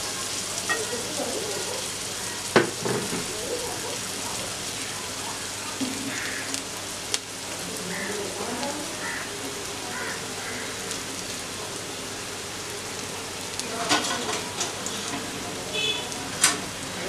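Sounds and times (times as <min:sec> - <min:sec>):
onions sizzling in oil: 0:00.0 - 0:17.0.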